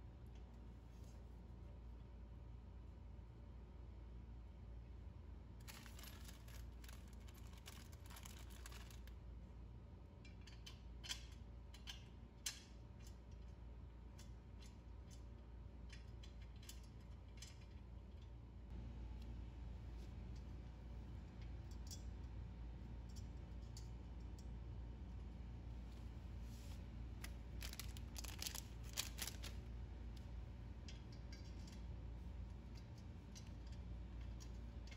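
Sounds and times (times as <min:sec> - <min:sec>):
metal parts clicking and scraping: 0:05.6 - 0:09.1, 0:27.2 - 0:29.6.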